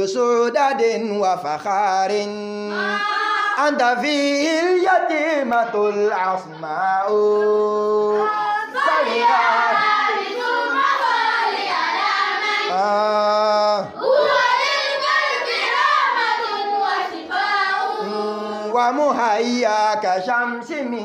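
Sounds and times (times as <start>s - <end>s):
young voices singing: 2.6s - 4.0s, 4.6s - 19.0s.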